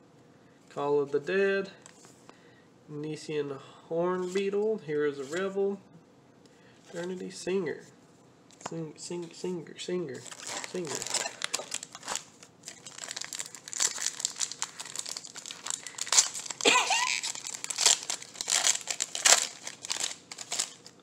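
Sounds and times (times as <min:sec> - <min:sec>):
foil wrapper crinkling and tearing: 0:10.2 - 0:21.0.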